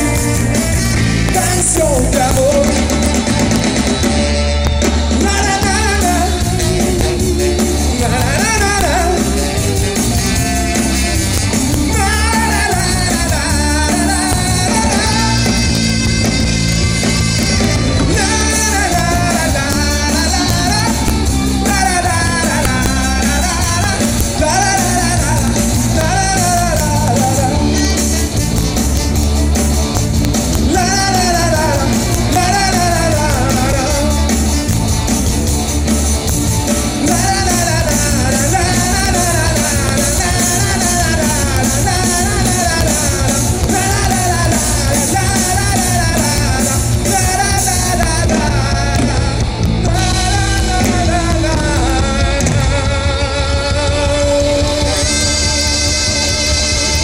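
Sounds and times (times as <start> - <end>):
man singing: 0.0 - 35.2, 36.6 - 57.0
live band music: 0.0 - 57.0.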